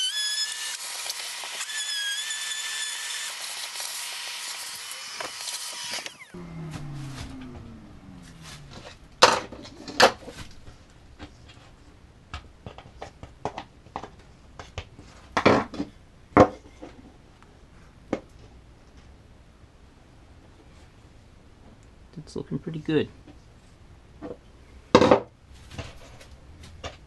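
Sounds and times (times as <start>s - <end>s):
router spinning down: 0.0s - 10.1s.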